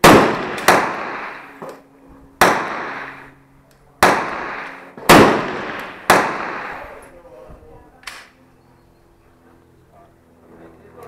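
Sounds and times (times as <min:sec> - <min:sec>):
faint gunshot: 0:00.0 - 0:01.5, 0:02.4 - 0:03.3, 0:04.0 - 0:06.9
rifle shots echoing: 0:00.0 - 0:01.7, 0:02.4 - 0:03.4, 0:04.0 - 0:07.0.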